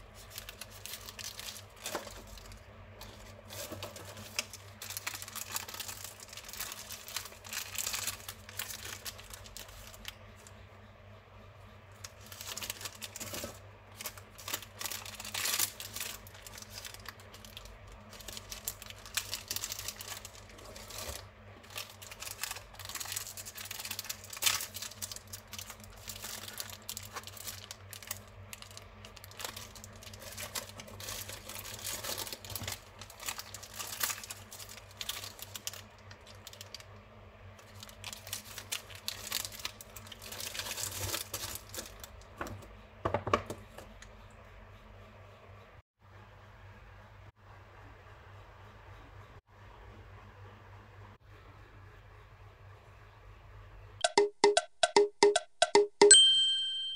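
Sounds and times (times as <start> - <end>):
packaging crinkling: 0.0 - 10.5, 11.9 - 37.0, 37.6 - 42.6
packet tearing: 0.2 - 10.2, 12.2 - 36.9, 37.6 - 42.1.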